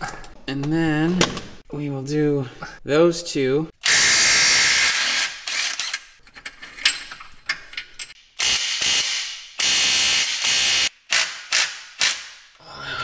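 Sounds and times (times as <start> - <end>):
impact wrench hammering: 8.4 - 12.4.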